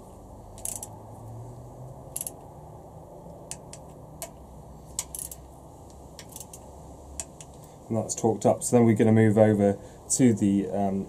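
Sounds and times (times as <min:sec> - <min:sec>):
torque wrench metal clicks: 0:00.6 - 0:00.9, 0:02.2 - 0:02.4, 0:06.2 - 0:06.6.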